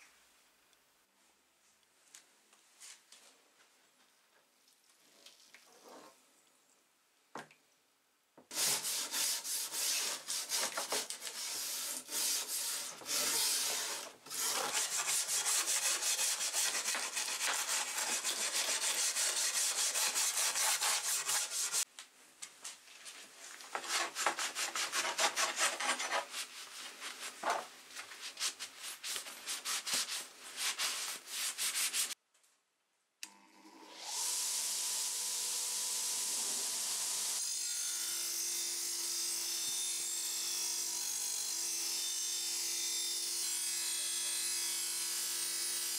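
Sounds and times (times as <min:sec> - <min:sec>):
brush scrubbing metal blade: 0:08.5 - 0:21.9.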